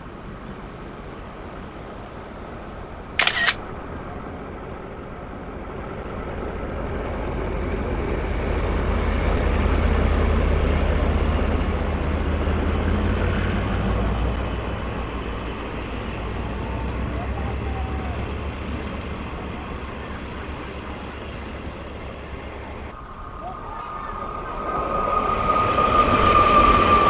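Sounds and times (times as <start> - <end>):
diesel locomotive engine rumble: 0.0 - 27.0
short sharp burst: 3.2 - 3.6.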